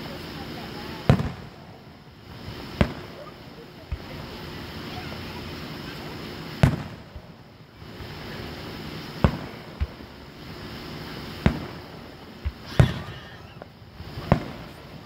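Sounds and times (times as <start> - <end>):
distant firework booms: 1.0 - 3.3, 5.2 - 15.0.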